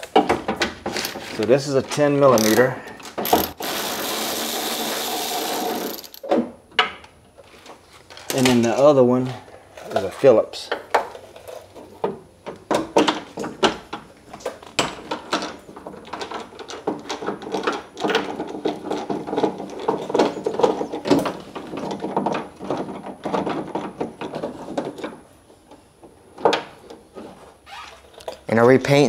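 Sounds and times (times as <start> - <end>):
small knocks and scraping: 0.0 - 3.6, 6.1 - 28.6.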